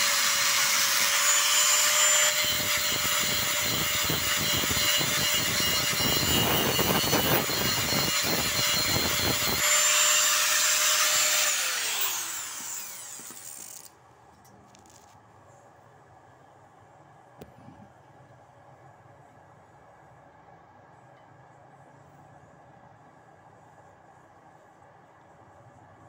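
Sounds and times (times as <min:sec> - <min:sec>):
angle grinder grinding steel: 0:00.0 - 0:13.9.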